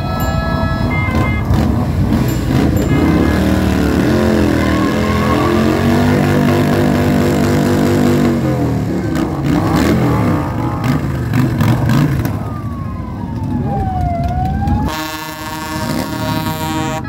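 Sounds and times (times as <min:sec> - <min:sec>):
siren tone gliding: 0:00.0 - 0:01.7, 0:02.7 - 0:07.4
motorcycles riding past: 0:00.2 - 0:17.0.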